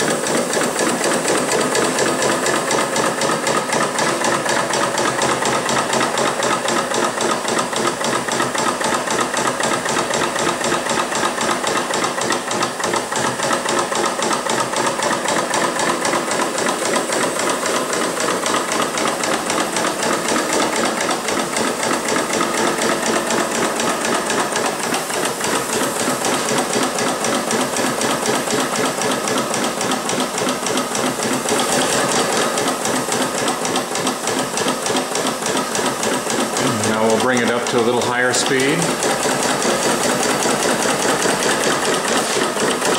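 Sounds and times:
model steam engine puffing: 0.0 - 42.9
air hissing: 8.2 - 29.6, 36.4 - 42.9.

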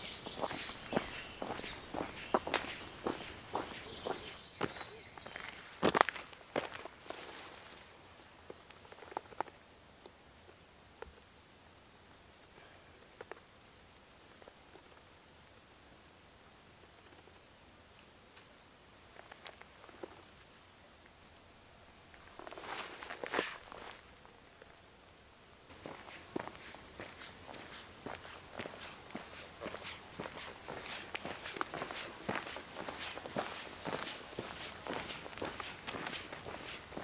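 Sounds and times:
leaves and stems rustling: 0.0 - 4.4, 22.2 - 24.2
insects buzzing song: 0.0 - 37.0.

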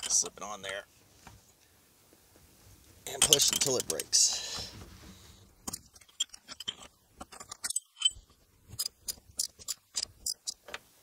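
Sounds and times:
socket ratchet clicking: 8.8 - 10.6.

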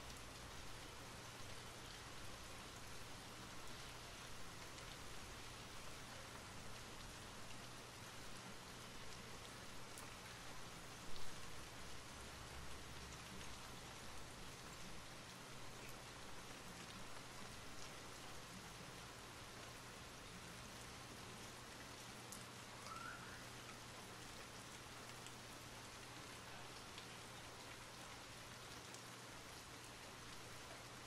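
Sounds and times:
steady rain hiss: 0.0 - 31.0.

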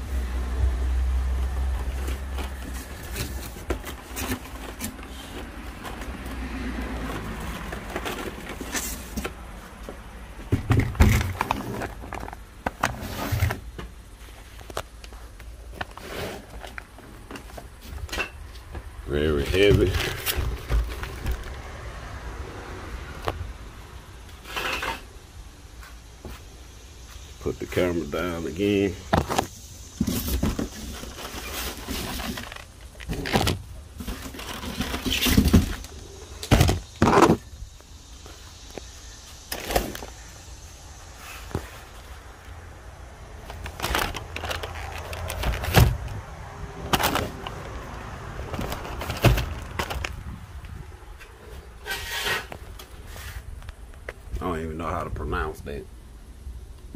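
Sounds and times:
rustling and scraping: 1.3 - 21.7, 24.3 - 42.6, 43.4 - 46.2, 46.8 - 47.8, 48.4 - 54.3
knocks and thumps: 10.4 - 11.6
brief scrape: 51.8 - 53.4.

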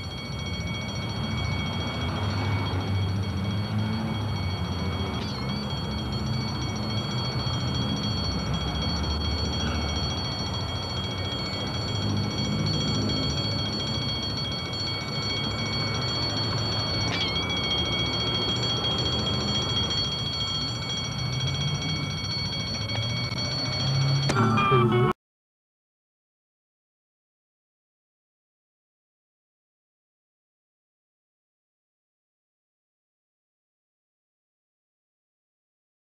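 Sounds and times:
street traffic rumble: 0.0 - 25.1
buses passing: 0.0 - 25.2
high-pitched recording whine: 0.0 - 25.2.

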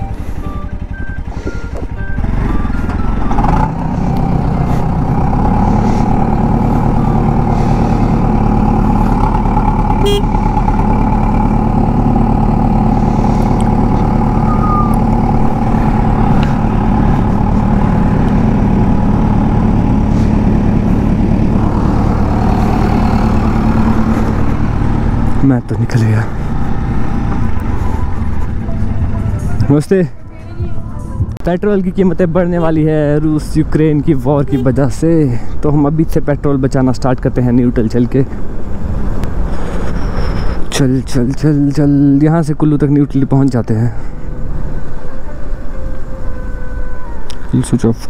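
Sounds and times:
motorcycle engine running: 0.0 - 35.1.

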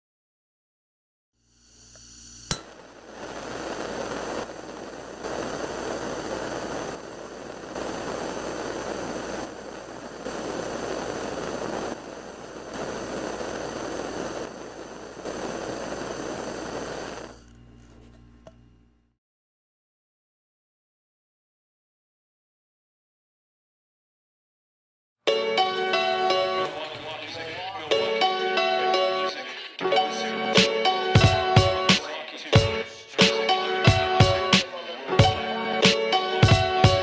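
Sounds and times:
crackling electric sparks: 1.5 - 17.6
sharp snap: 2.5 - 2.8.

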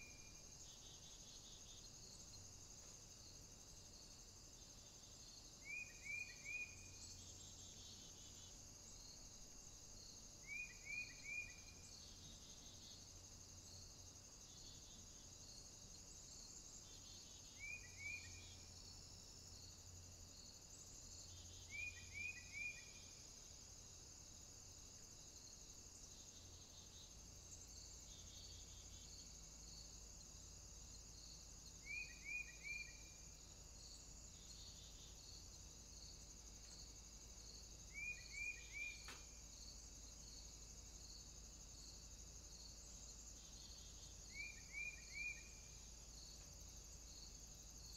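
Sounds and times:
high insect drone: 0.0 - 47.9
small bird chirping: 31.8 - 33.2, 37.9 - 39.5, 43.4 - 46.4.

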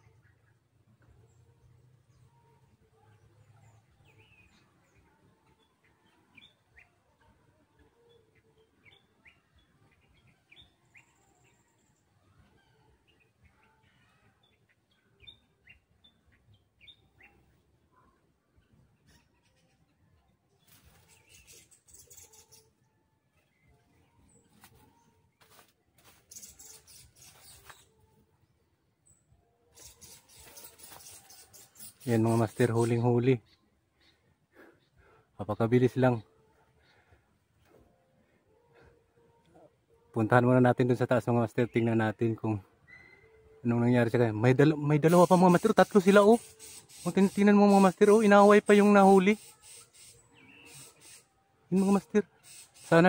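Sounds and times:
high bird chirps: 26.1 - 28.0, 29.1 - 34.2, 42.8 - 43.5, 44.6 - 51.3.

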